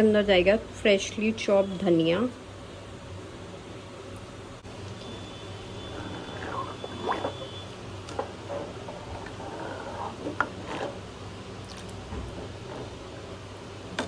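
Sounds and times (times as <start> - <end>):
liquid gurgling in a pot: 5.8 - 13.2.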